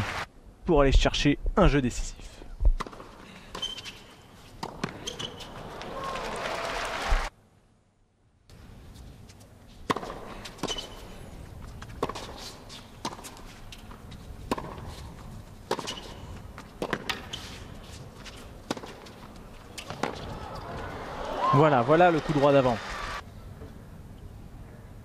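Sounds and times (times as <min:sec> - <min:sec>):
racket striking tennis ball: 0:04.6 - 0:05.4, 0:09.8 - 0:11.0, 0:12.0 - 0:13.4, 0:14.4 - 0:17.7, 0:18.6 - 0:20.6.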